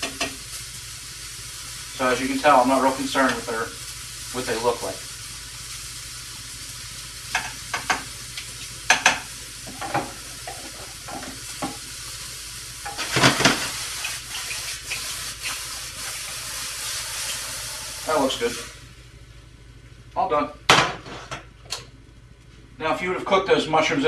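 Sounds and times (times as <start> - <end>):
pan sizzling: 0.0 - 19.2.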